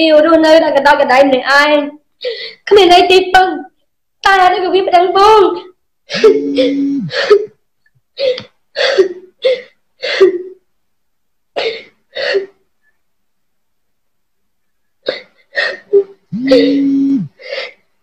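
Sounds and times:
woman wailing: 0:06.1 - 0:07.5, 0:15.9 - 0:17.6
woman sobbing: 0:06.1 - 0:07.6, 0:08.2 - 0:10.6, 0:15.0 - 0:17.9.

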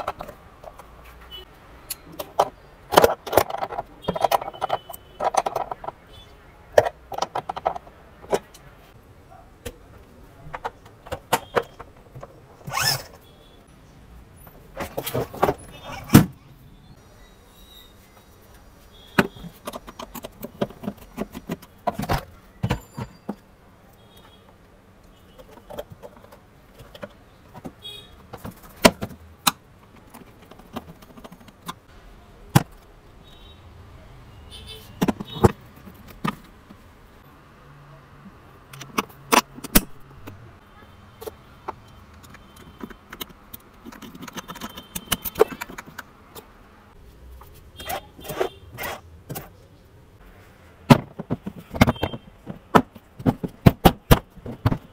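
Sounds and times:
plastic parts clicking and rattling: 0:00.0 - 0:01.1, 0:01.9 - 0:08.7, 0:19.1 - 0:24.4, 0:25.0 - 0:31.9, 0:35.0 - 0:36.9, 0:38.7 - 0:40.4, 0:41.2 - 0:46.6, 0:50.8 - 0:54.9
hand tools being handled: 0:10.6 - 0:13.2, 0:41.2 - 0:46.5.

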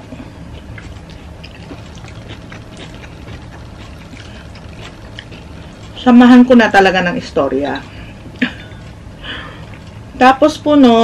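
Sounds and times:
steady low hum: 0:00.0 - 0:11.0
small wet sounds: 0:00.2 - 0:06.0.

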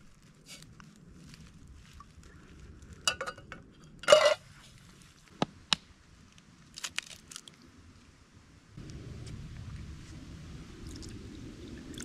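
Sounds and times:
metal lid clatter: 0:03.1 - 0:04.4.

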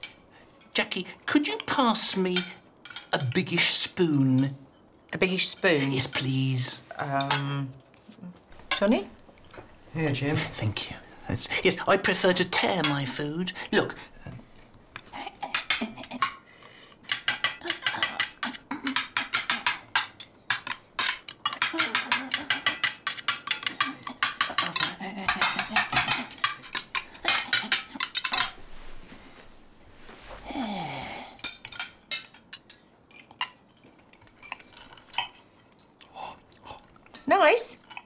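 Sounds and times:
cutlery scraping on plates: 0:15.0 - 0:16.4, 0:17.0 - 0:28.7, 0:31.4 - 0:36.0.

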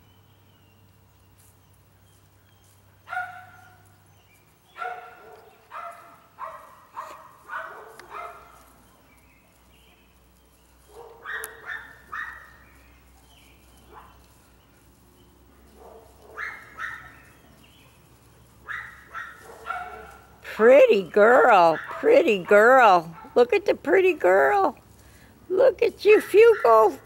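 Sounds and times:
dog barking: 0:03.1 - 0:03.8, 0:04.8 - 0:08.6, 0:10.9 - 0:12.6, 0:15.8 - 0:17.2, 0:18.7 - 0:20.3, 0:21.8 - 0:22.0.

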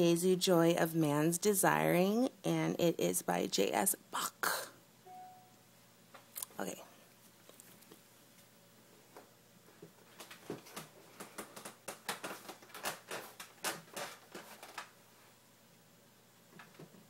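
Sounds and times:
soft clicks and rustles: 0:07.2 - 0:15.0.

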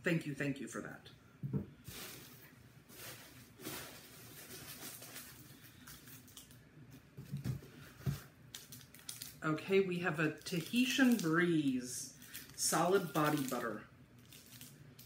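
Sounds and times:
packing paper rustling: 0:01.9 - 0:06.6, 0:07.3 - 0:09.4, 0:10.4 - 0:15.0.

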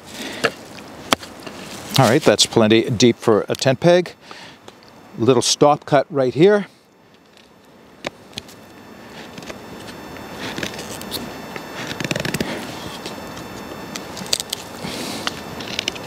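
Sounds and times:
knife shaving wood: 0:09.0 - 0:16.0.

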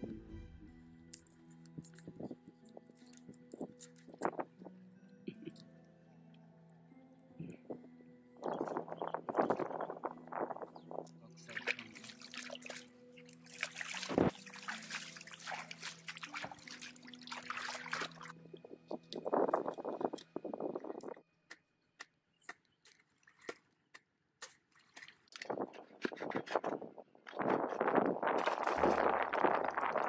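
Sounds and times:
hand splashing in muddy water: 0:11.5 - 0:18.4, 0:27.4 - 0:30.0.

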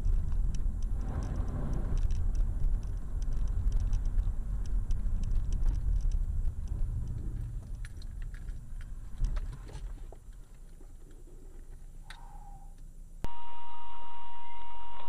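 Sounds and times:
small clicks and rattles: 0:00.0 - 0:12.9
car rumbling over rutted road: 0:00.0 - 0:13.3
high-pitched electronic tone: 0:13.3 - 0:15.0.

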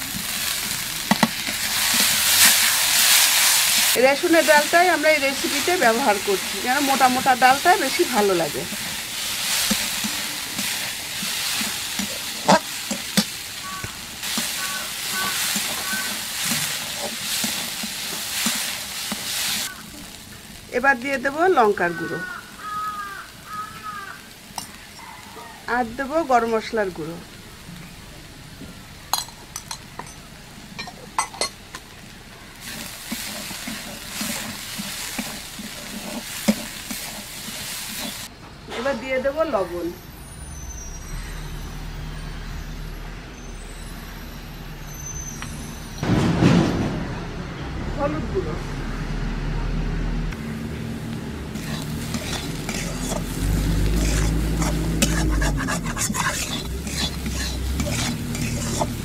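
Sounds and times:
metal spatula scraping a pan: 0:00.0 - 0:19.9, 0:32.6 - 0:38.3, 0:51.3 - 0:59.0
food frying in oil: 0:00.0 - 0:38.3, 0:50.4 - 0:59.0
lentils sizzling: 0:00.0 - 0:47.0, 0:50.4 - 0:59.0.

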